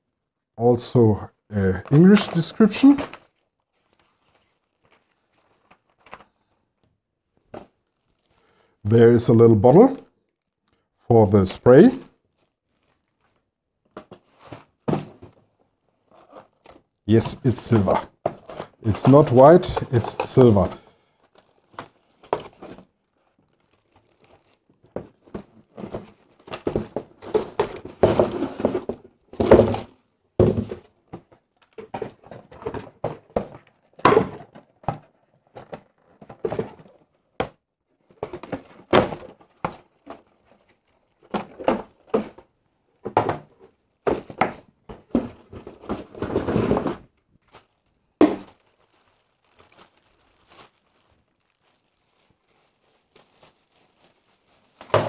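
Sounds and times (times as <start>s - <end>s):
plastic crinkling: 1.6s - 8.8s, 10.0s - 11.0s, 12.1s - 37.4s, 38.0s - 46.3s, 47.0s - 55.0s
cardboard box knocks and thunks: 14.0s - 15.4s, 25.0s - 31.2s, 31.8s - 37.6s, 38.2s - 40.2s, 43.1s - 47.0s.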